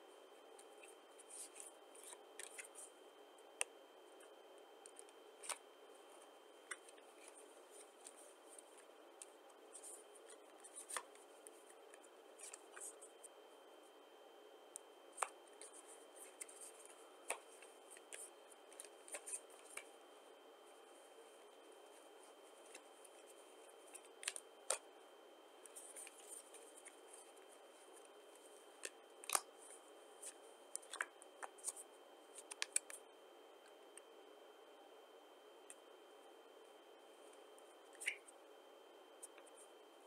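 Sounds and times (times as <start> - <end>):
playing cards snapping and clicking: 29.2 - 29.5.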